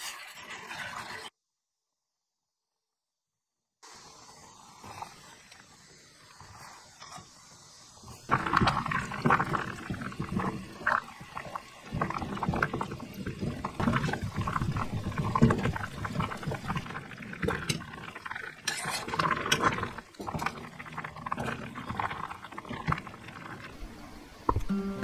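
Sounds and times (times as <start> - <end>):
liquid boiling and bubbling: 0.0 - 1.4, 3.8 - 25.0
liquid pouring in a thin stream: 8.3 - 24.2.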